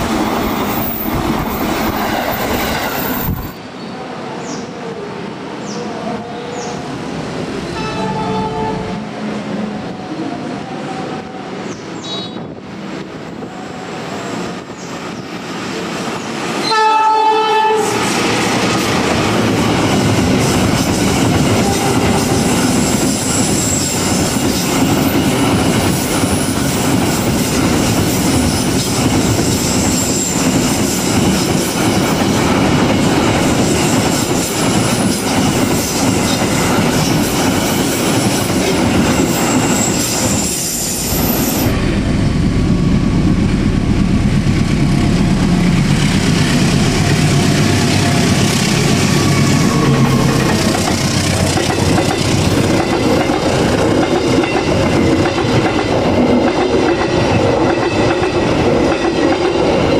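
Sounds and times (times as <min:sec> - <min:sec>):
diesel locomotive horn: 0:07.7 - 0:12.5, 0:16.6 - 0:18.1, 0:21.6 - 0:22.5
train wheels clattering on rails: 0:17.8 - 0:41.8, 0:43.3 - 0:59.9
diesel locomotive rumble: 0:41.2 - 0:55.9.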